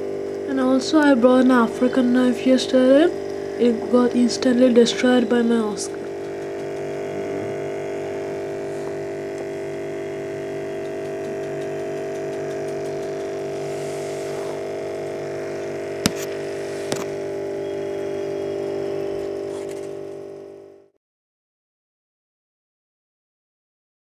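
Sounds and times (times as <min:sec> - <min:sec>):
aquarium pump humming: 0:00.0 - 0:21.0
sharp clicks: 0:06.0 - 0:07.0, 0:10.8 - 0:13.4.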